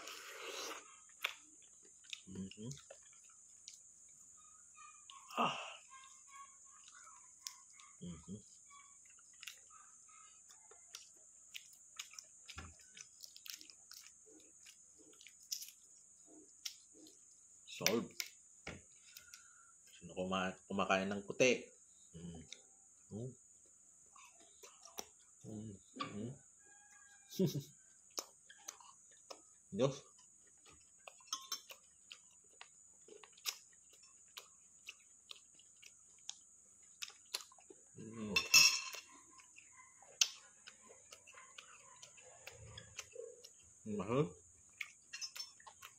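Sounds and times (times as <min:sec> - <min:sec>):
eating sounds: 0:00.0 - 0:20.0, 0:24.1 - 0:26.4, 0:27.3 - 0:45.9
quiet chewing: 0:00.0 - 0:20.0, 0:23.6 - 0:45.9
eggshell crackling and clicking: 0:05.9 - 0:08.0, 0:19.0 - 0:19.9, 0:27.8 - 0:37.9, 0:44.6 - 0:45.9
spoon clinking on ceramic bowl: 0:31.3 - 0:31.7, 0:38.4 - 0:39.1.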